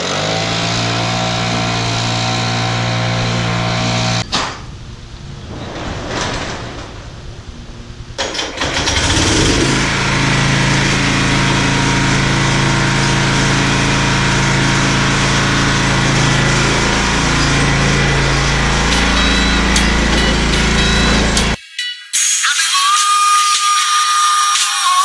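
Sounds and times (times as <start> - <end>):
lawn mower engine running: 0.0 - 5.6, 7.0 - 21.6.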